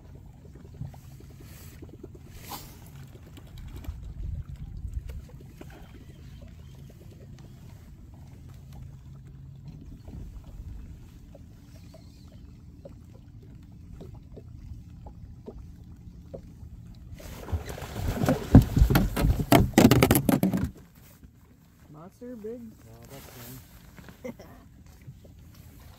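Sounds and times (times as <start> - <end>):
low steady rumble: 0.0 - 19.8
fish splashing at water surface: 17.1 - 20.5.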